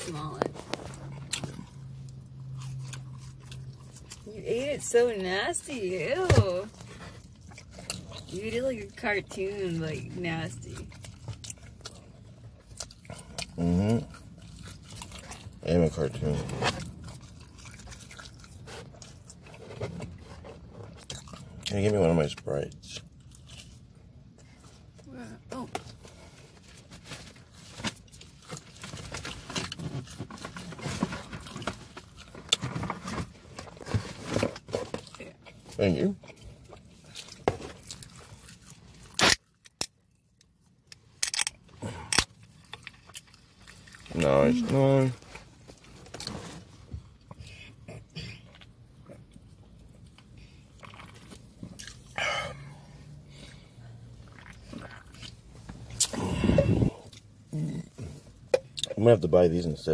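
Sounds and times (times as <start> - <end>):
man gulping and swallowing: 54.2 - 59.0.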